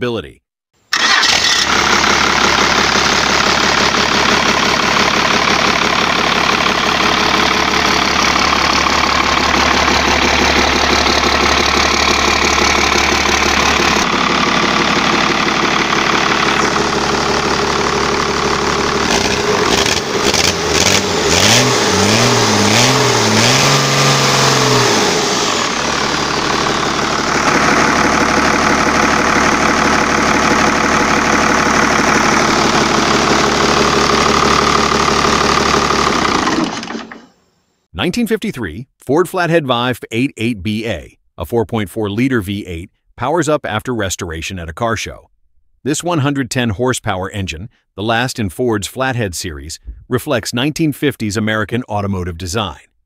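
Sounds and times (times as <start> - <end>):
diesel engine idling: 0.9 - 37.2
diesel engine revving: 0.9 - 37.2.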